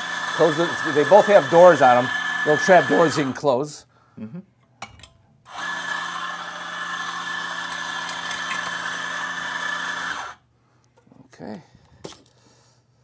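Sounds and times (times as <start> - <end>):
coffee grinder whining: 0.0 - 3.5, 5.5 - 10.4.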